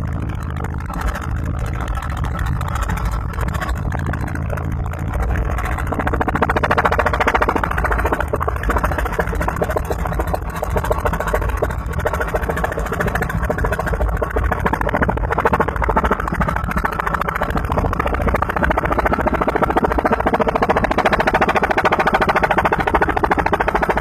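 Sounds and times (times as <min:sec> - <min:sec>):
engine hum: 0:00.0 - 0:24.0
helicopter rotor chopping: 0:00.0 - 0:24.0.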